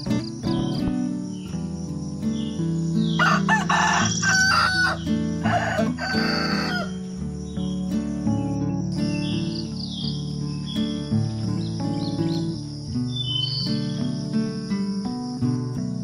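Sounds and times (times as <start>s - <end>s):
soft background music: 0.0s - 16.0s
rooster crowing: 3.1s - 7.2s.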